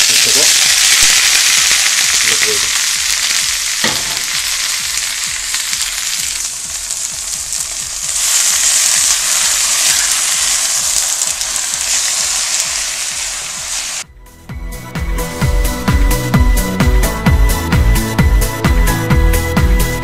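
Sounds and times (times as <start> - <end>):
meat sizzling in a wok: 0.0 - 14.1.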